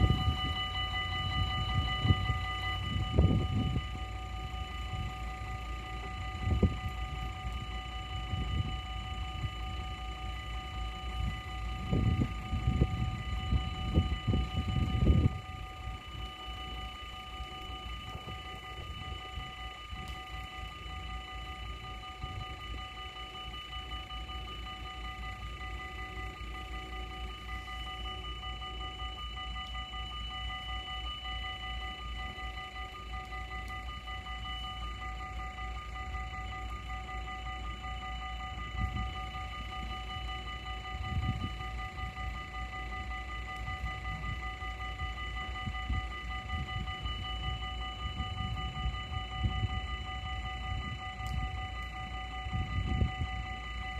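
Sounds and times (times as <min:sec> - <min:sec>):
wind rumble on microphone: 0:00.0 - 0:16.4, 0:38.5 - 0:40.2, 0:40.8 - 0:42.5, 0:43.6 - 0:53.9
level crossing warning bells: 0:00.0 - 0:53.9.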